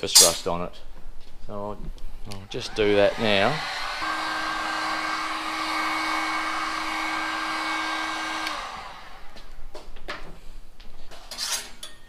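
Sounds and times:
heat gun fan whining: 0:02.5 - 0:09.7.

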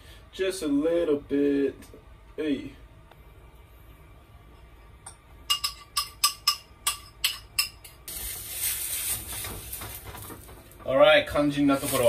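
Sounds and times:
spoon clinking on bowl: 0:05.1 - 0:08.0
batter sizzling in pan: 0:07.9 - 0:12.0.

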